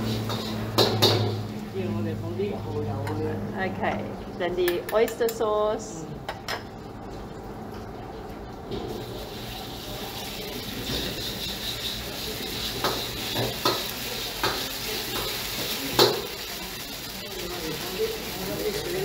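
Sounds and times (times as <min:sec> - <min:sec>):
metal ladle scraping a wok: 0:00.0 - 0:01.5, 0:09.1 - 0:16.4
sauce sizzling in a wok: 0:00.0 - 0:02.3, 0:08.8 - 0:19.0.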